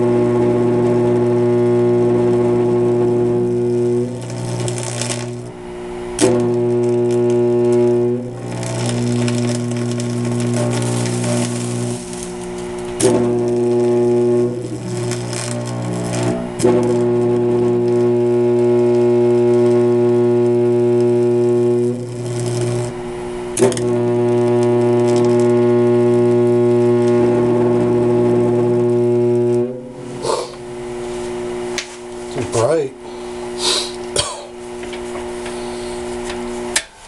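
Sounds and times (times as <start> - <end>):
arc torch electric buzz: 0.0 - 37.0
arc torch sharp crack: 3.3 - 27.2.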